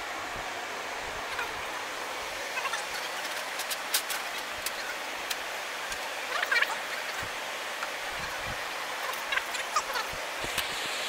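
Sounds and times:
airplane cabin hiss: 10.4s - 11.0s.

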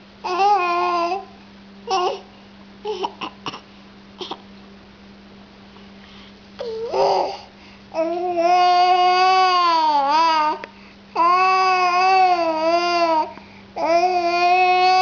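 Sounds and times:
faint low hum: 0.0s - 15.0s
baby babbling: 0.2s - 1.3s, 1.9s - 2.3s, 2.9s - 3.6s, 6.6s - 10.6s, 11.2s - 15.0s.

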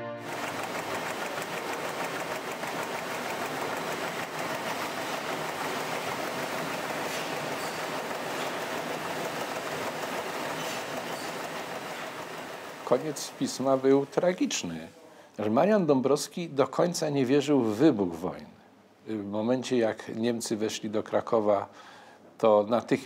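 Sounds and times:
printing press clattering: 0.3s - 14.3s.

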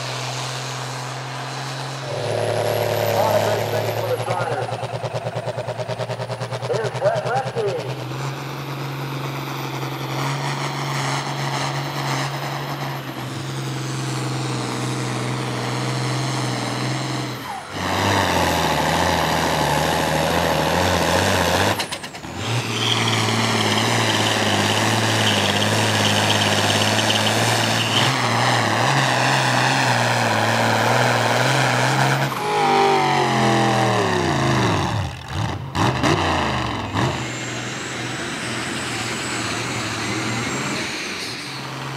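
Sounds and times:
tractor engines running hard: 0.0s - 41.9s.

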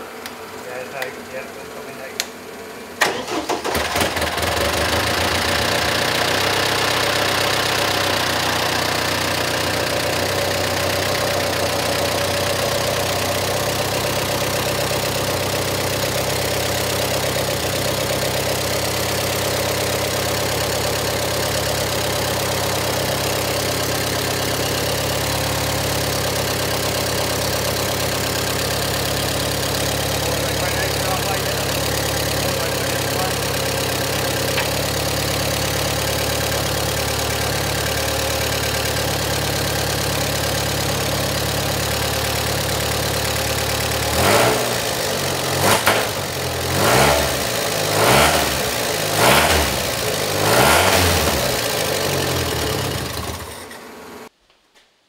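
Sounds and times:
car engine idling: 0.0s - 54.3s.

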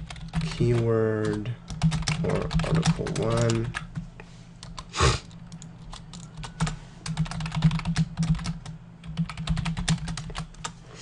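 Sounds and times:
typing on computer keyboard: 0.0s - 3.9s, 5.5s - 10.7s.

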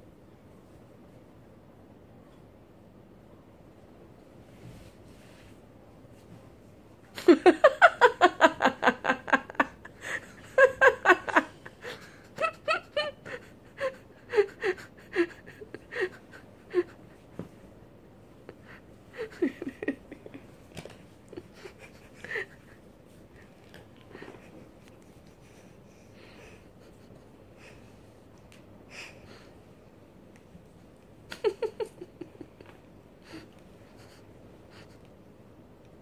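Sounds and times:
person laughing: 7.2s - 17.1s, 18.5s - 20.6s, 21.2s - 22.8s, 31.3s - 34.9s.

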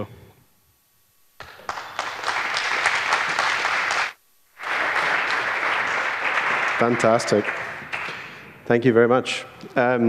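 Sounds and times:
audience applauding: 1.4s - 8.5s.

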